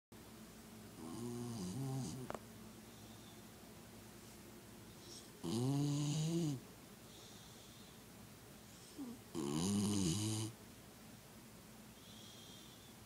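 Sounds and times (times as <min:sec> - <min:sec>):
dog snoring: 0:01.0 - 0:02.4, 0:05.0 - 0:06.6, 0:08.8 - 0:10.6
faint breathing: 0:02.8 - 0:05.4, 0:07.0 - 0:09.2, 0:11.9 - 0:13.0.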